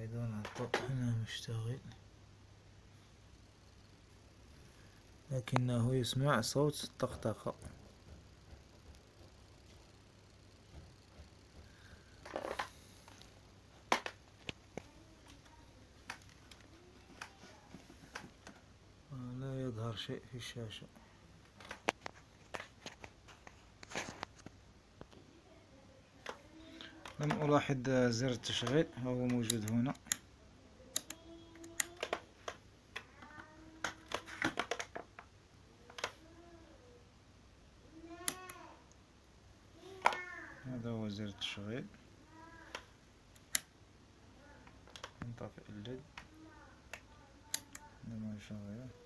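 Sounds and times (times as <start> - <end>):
low steady hum: 0.0 - 49.0
sharp clicks and taps: 6.6 - 17.4, 30.9 - 35.3
faint high-pitched cries: 37.9 - 38.8.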